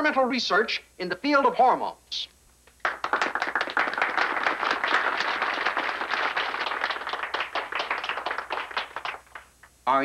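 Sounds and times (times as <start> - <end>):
audience applauding: 2.8 - 9.6.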